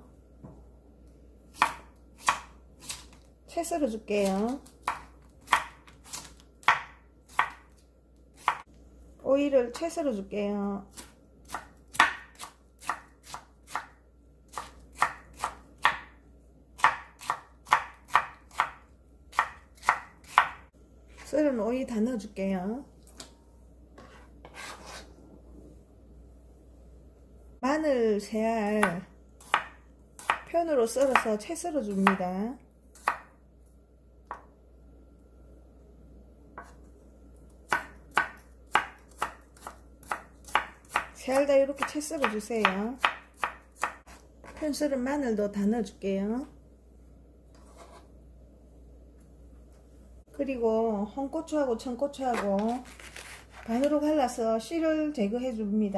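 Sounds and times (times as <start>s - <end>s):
knife chopping on wooden board: 4.8s - 7.6s, 11.0s - 16.2s, 16.8s - 20.6s, 24.0s - 25.0s, 28.8s - 31.3s, 37.7s - 41.2s, 41.8s - 44.6s.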